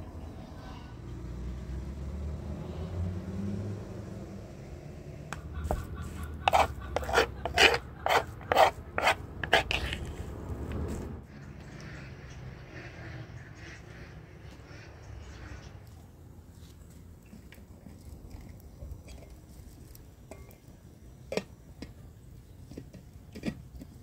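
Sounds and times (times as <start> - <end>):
rasping scraping strokes: 5.6 - 11.1.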